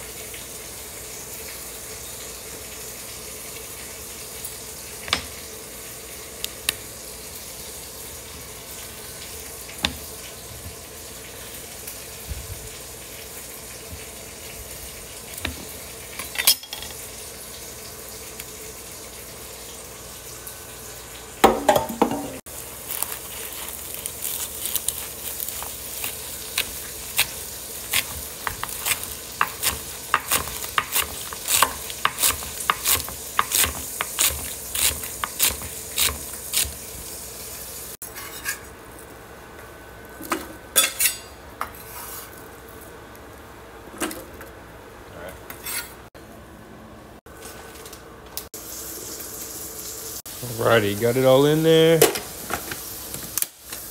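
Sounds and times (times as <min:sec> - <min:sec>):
knife chopping on plastic board: 0:26.1 - 0:36.8
steady hiss: 0:48.6 - 0:53.9.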